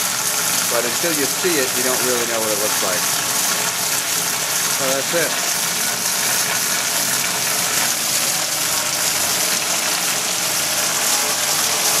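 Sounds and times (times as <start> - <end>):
coolant spraying and splashing: 0.0 - 12.0.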